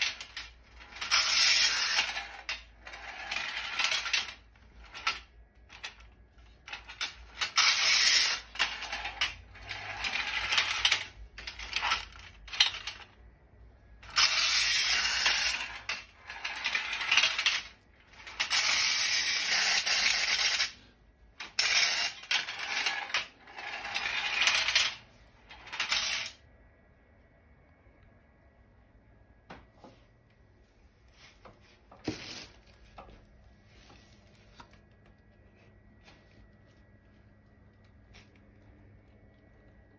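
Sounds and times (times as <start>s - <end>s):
clockwork toy car whirring: 0.0s - 13.2s, 13.9s - 26.4s.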